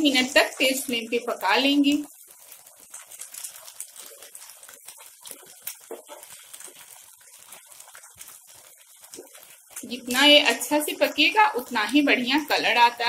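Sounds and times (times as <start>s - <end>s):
sauce bubbling and sizzling in a pan: 0.0s - 13.0s
spatula stirring: 2.1s - 11.4s.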